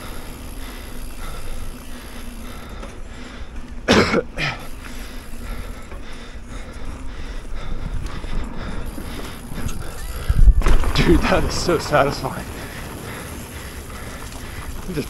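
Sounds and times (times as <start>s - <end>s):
bike rolling over dirt: 0.0s - 15.0s
person coughing: 3.9s - 4.7s.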